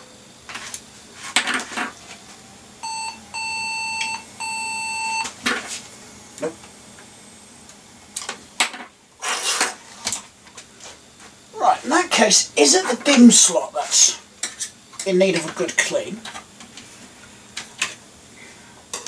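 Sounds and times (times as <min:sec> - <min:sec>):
computer error beeps: 0:02.8 - 0:05.3.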